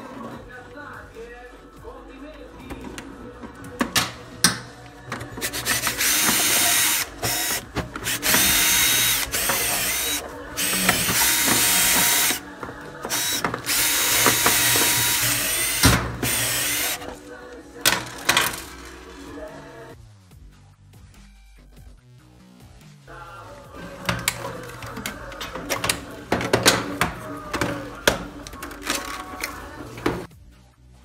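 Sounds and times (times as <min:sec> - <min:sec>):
cordless drill running: 0:05.4 - 0:17.2.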